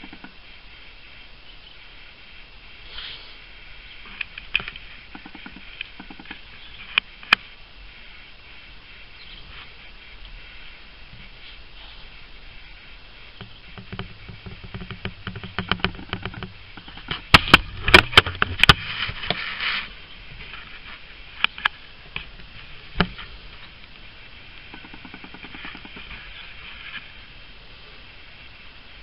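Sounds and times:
rustling: 0.0 - 29.0.

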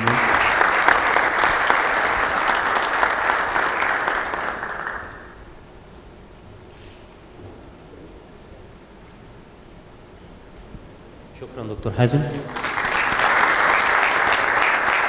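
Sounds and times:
audience applauding: 0.0 - 5.5, 12.3 - 15.0.

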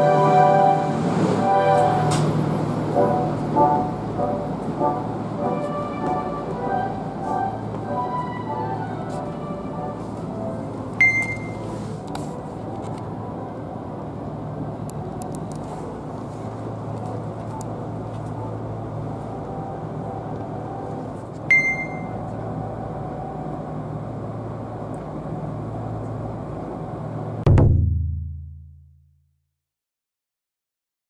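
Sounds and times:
train air conditioning hum: 0.0 - 27.6
short high beeps: 11.0 - 11.6, 21.5 - 22.2.

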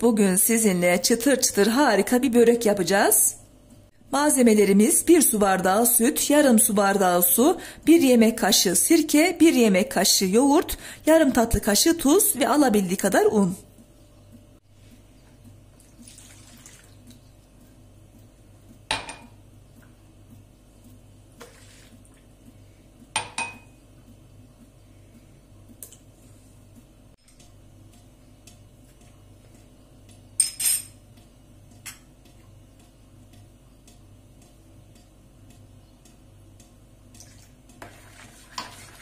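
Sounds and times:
liquid pouring into plastic bowl: 15.8 - 17.2.

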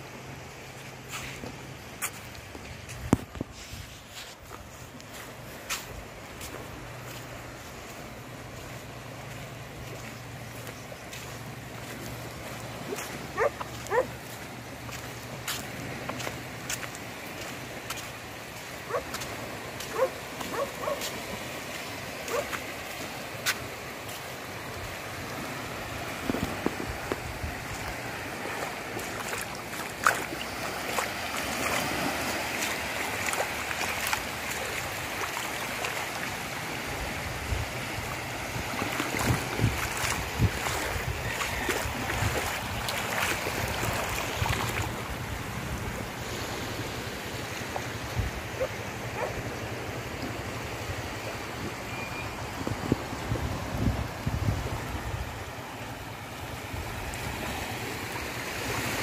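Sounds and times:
small waves lapping on shore: 0.0 - 59.0
wind buffeting microphone: 37.1 - 46.2, 52.5 - 55.6.

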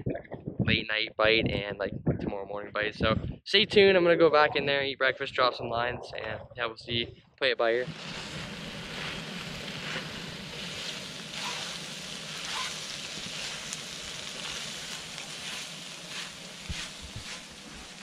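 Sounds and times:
food sizzling in frying pan: 7.8 - 18.0
spatula scraping pan: 14.4 - 17.6.

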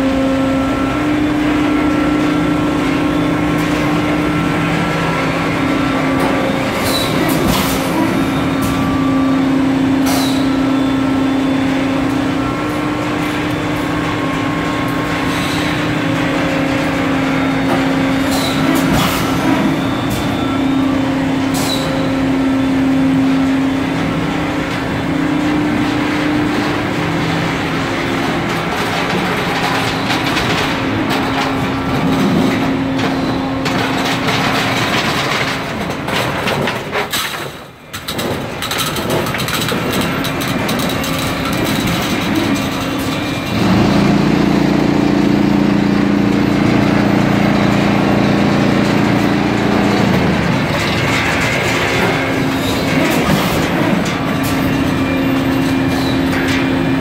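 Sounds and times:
deeper machine hum: 0.0 - 37.0, 39.0 - 57.0
rattling and clatter: 25.9 - 44.0, 48.6 - 57.0
machine hum: 39.0 - 57.0.

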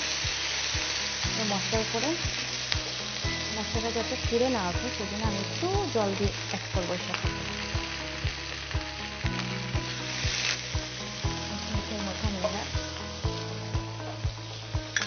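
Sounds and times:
background music with beat: 0.0 - 1.4, 7.2 - 15.0
spice paste sizzling in oil: 0.0 - 15.0.

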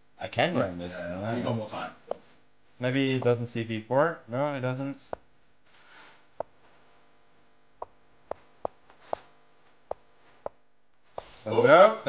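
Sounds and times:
faint steady hum: 0.0 - 12.0
chess move clicks: 7.8 - 9.3.

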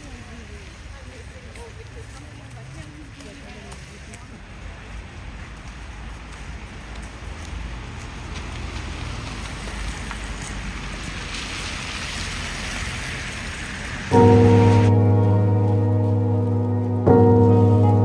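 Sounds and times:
street noise hiss: 0.0 - 18.0
background music chord: 14.1 - 18.0.

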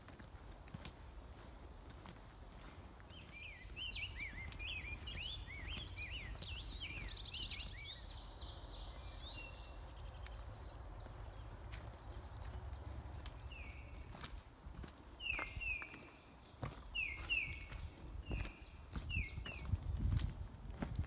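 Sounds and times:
songbirds whistling: 3.1 - 11.2, 15.2 - 19.7.

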